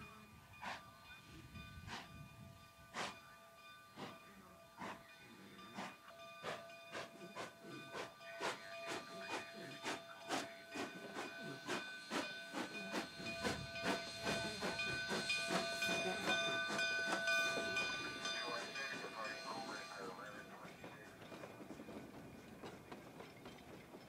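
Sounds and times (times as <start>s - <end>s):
steam locomotive exhaust chuffing: 0.0s - 24.0s
steam hissing: 2.9s - 3.3s, 4.0s - 21.9s.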